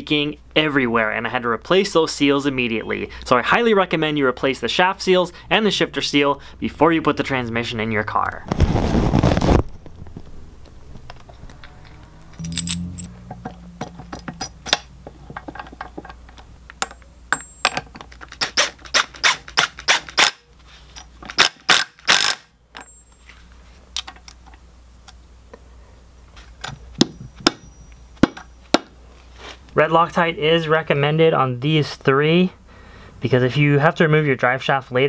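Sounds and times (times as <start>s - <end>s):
metal clicks and clinks: 11.5s - 18.4s, 26.6s - 28.6s
cordless impact wrench bursts: 18.4s - 20.4s, 21.3s - 22.5s.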